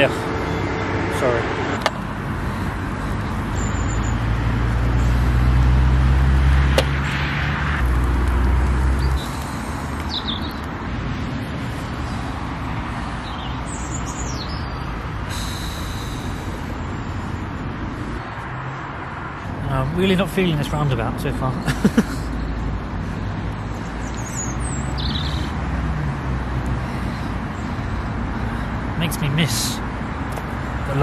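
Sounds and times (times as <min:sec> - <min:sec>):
low vehicle engine rumble: 0:00.0 - 0:31.0
road traffic: 0:00.0 - 0:31.0
small birds chirping: 0:02.4 - 0:05.4, 0:08.3 - 0:10.8, 0:11.6 - 0:26.0.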